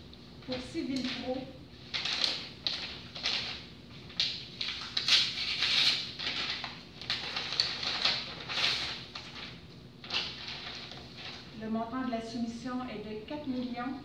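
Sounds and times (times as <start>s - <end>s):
paper rustling: 0.5s - 11.6s.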